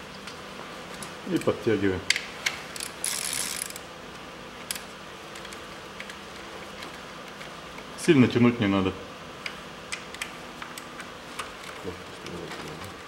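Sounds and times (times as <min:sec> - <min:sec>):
socket ratchet clicking: 0:02.8 - 0:03.8.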